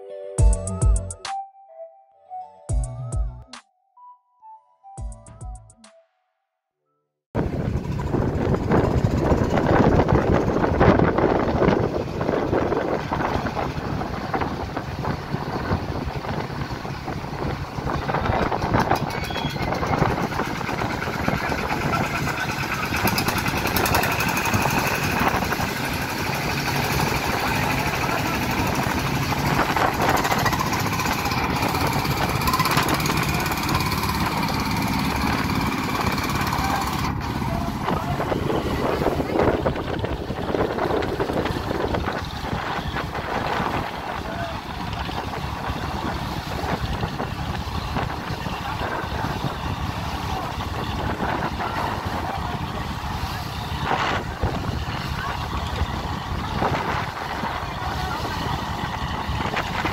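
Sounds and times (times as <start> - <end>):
boat diesel engines running: 7.4 - 59.9
people calling out: 18.9 - 20.2.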